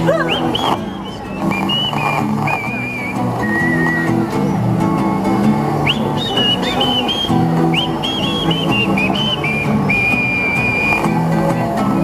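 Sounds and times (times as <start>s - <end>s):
acoustic guitar strumming: 0.0s - 12.0s
person whistling a tune: 0.2s - 4.2s, 5.8s - 11.3s.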